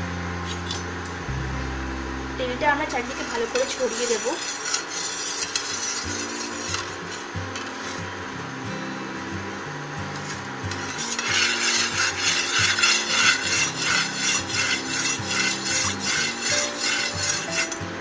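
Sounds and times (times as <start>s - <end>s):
metal spoon scraping pan: 2.9s - 8.1s, 10.1s - 17.8s.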